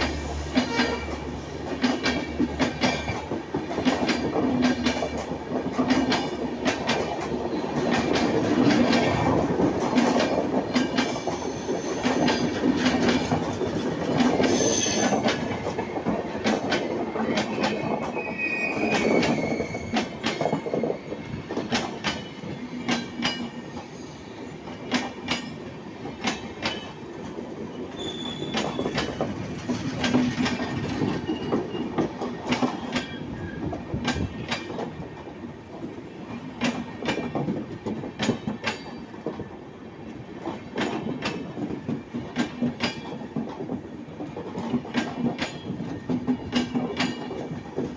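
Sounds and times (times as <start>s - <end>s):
train wheels clacking over rail joints: 0.0s - 23.9s, 24.6s - 39.6s, 40.4s - 47.9s
high-pitched wheel squeals: 18.2s - 20.7s, 28.0s - 29.0s.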